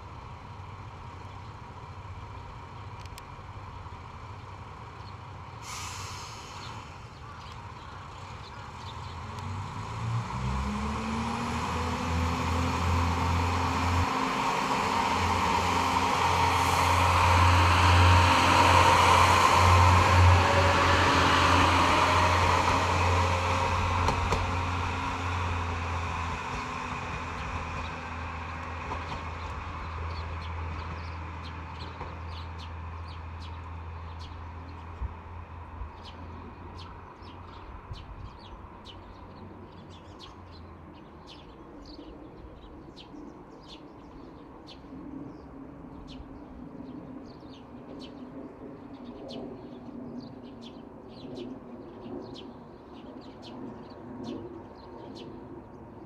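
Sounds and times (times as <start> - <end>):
diesel railcar pulling away: 0.0 - 40.6
small birds chirping: 6.6 - 9.9.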